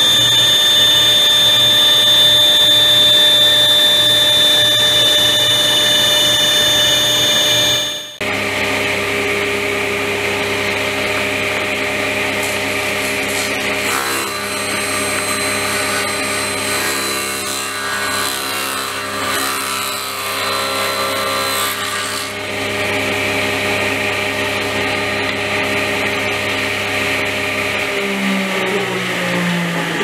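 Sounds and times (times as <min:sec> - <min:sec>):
saw blade spinning freely: 0:00.0 - 0:08.2
table saw cutting wood: 0:00.0 - 0:30.0.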